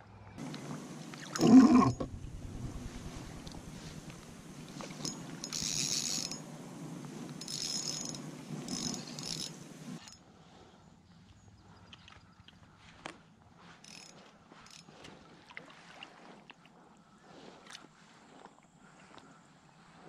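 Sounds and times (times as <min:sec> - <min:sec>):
fishing reel gears whirring: 0:00.4 - 0:10.2, 0:13.8 - 0:14.9.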